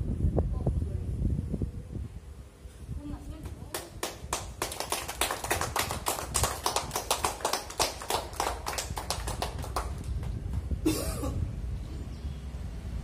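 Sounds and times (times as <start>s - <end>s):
people clapping: 3.4s - 10.7s.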